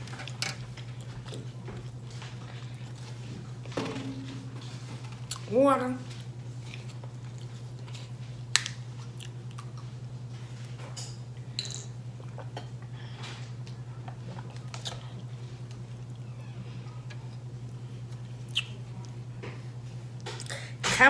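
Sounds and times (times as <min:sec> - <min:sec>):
low hum: 0:01.6 - 0:10.5.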